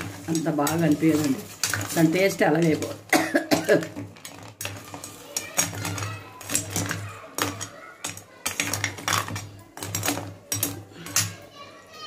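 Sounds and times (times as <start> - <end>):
utensils and dishes clinking: 0.0 - 12.0.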